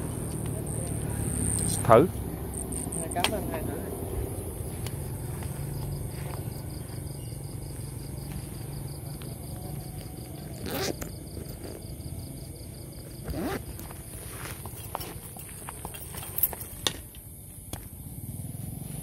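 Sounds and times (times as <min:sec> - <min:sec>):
crickets trilling: 0:00.0 - 0:19.0
scuffing rustle: 0:13.2 - 0:16.7.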